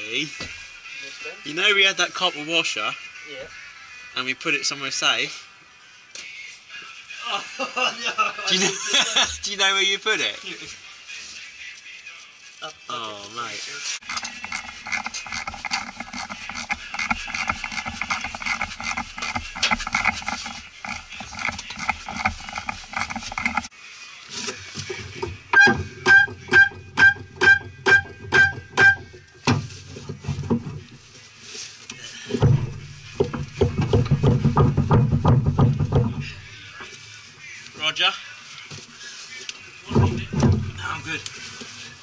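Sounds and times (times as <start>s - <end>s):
rhythmic background music: 0.0s - 5.4s, 14.0s - 23.8s, 24.4s - 30.8s, 32.0s - 41.9s.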